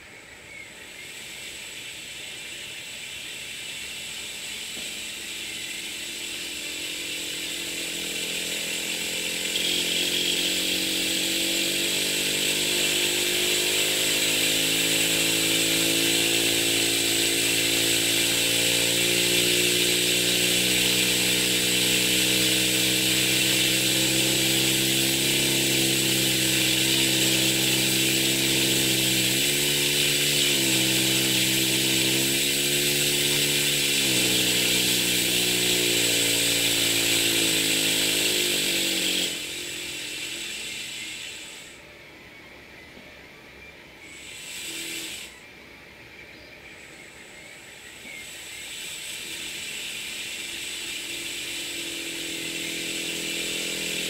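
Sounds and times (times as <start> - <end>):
pneumatic graver buzzing: 1.1 - 42.0, 44.0 - 45.6, 47.6 - 54.0.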